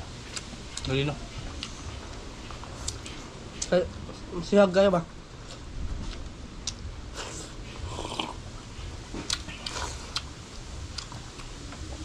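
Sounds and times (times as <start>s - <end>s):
chewing and slurping: 5.5s - 10.3s
wind rumble on microphone: 5.7s - 7.2s.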